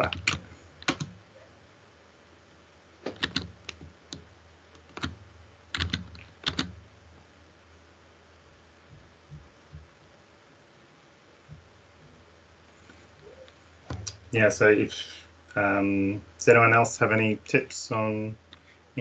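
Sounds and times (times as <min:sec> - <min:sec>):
keyboard keys clicking: 0:00.0 - 0:01.2, 0:03.1 - 0:04.2, 0:04.8 - 0:06.8.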